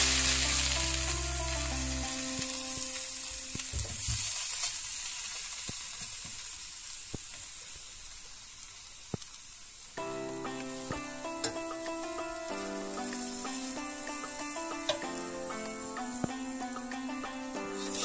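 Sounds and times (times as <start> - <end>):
steaks sizzling: 0.0 - 18.0.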